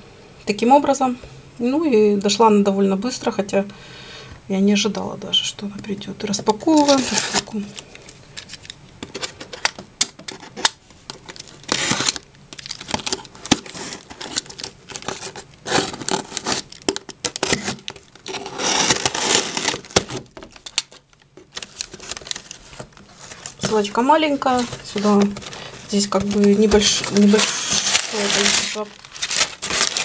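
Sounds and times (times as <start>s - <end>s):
packing tape tearing: 6.7s - 23.9s, 24.5s - 30.0s
cardboard flaps rustling: 21.4s - 30.0s.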